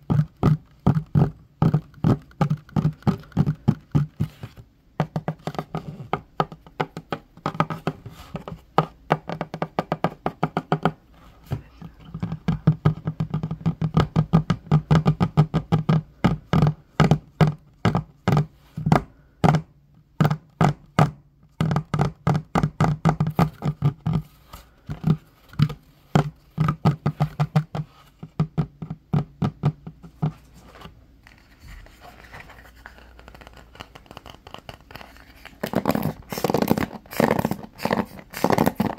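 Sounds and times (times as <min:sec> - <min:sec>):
fingers drumming on wooden table: 0:00.0 - 0:30.5, 0:33.4 - 0:38.9.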